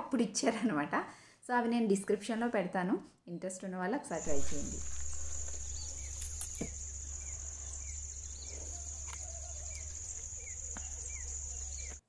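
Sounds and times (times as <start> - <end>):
bird chirping: 4.2 - 12.0
insects droning: 4.2 - 12.0.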